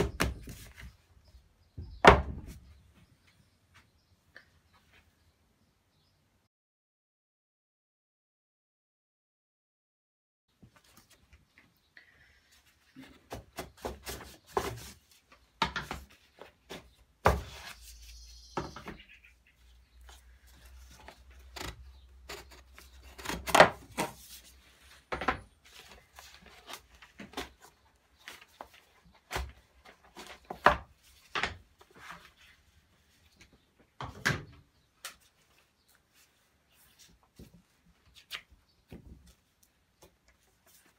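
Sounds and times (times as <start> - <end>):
wooden mould knocks and clunks: 1.7 - 2.7.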